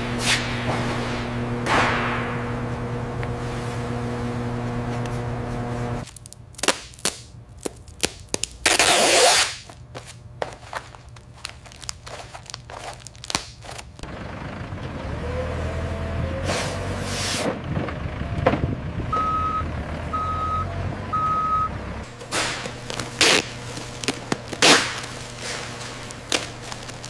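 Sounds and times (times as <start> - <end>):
machine hum with even tones: 0.0 - 8.8, 18.1 - 27.0.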